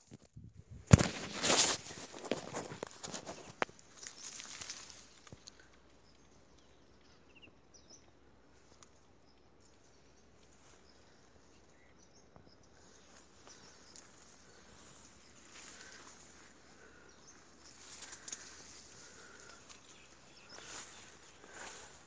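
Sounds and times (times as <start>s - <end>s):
light rustling with small clicks: 0.0s - 6.7s, 8.6s - 10.6s, 17.6s - 20.0s
bird chirps: 6.0s - 22.0s.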